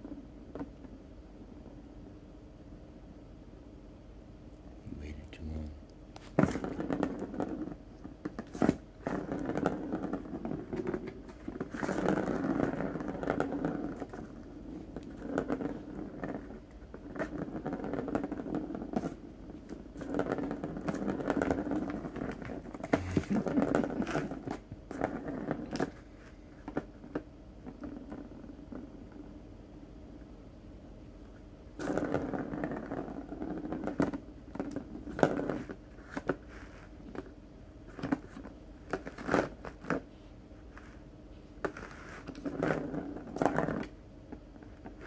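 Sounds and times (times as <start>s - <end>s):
plastic ball rolling on track: 6.4s - 29.3s, 31.8s - 40.1s, 41.6s - 45.0s.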